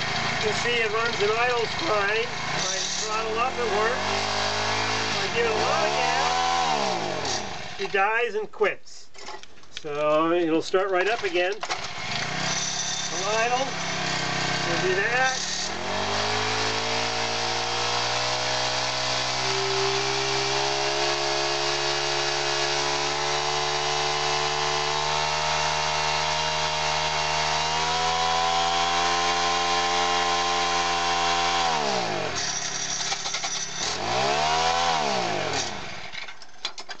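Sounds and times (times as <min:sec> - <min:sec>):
small four-stroke engine running: 0:00.0 - 0:07.9, 0:11.2 - 0:36.6.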